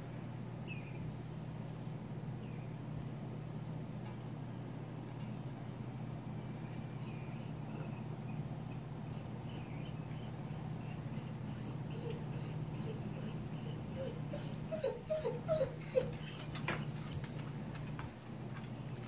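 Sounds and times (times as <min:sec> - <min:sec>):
dog whining: 0:07.3 - 0:08.1, 0:08.8 - 0:18.0
dog yelping: 0:09.1 - 0:17.7.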